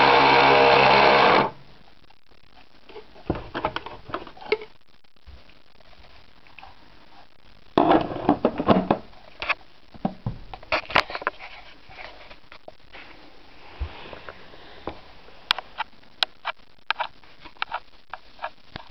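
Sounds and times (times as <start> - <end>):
rustling and crackling: 1.8 - 18.9.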